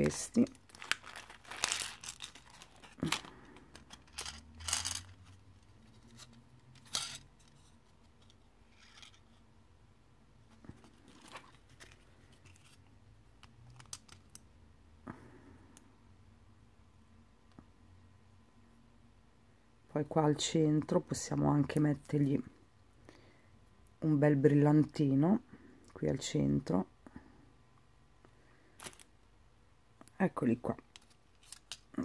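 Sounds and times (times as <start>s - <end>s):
plastic packaging crinkling: 0.0s - 6.3s.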